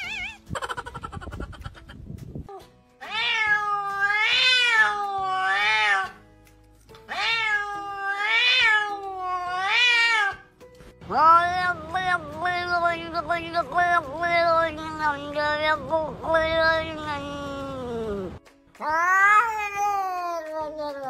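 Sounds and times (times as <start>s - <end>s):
cat meowing: 0.0s - 0.5s, 3.0s - 6.2s, 7.1s - 10.5s.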